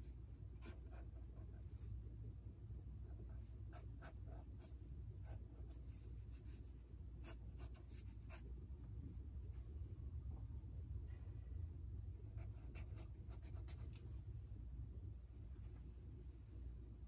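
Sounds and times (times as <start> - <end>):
low steady hum: 0.0 - 17.0
pen scratching on paper: 0.6 - 1.9, 3.1 - 8.5, 12.4 - 14.0.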